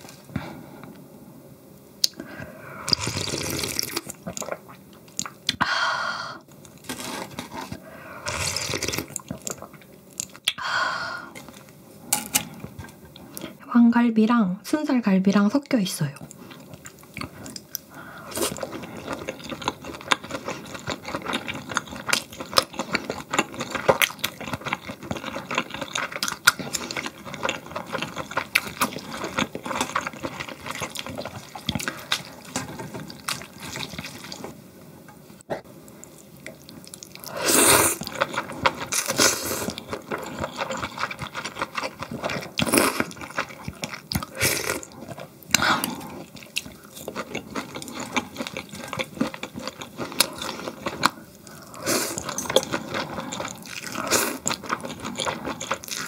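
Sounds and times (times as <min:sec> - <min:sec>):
wet chewing and slurping: 0:02.8 - 0:05.6, 0:06.8 - 0:10.6, 0:16.2 - 0:34.6, 0:35.6 - 0:56.0.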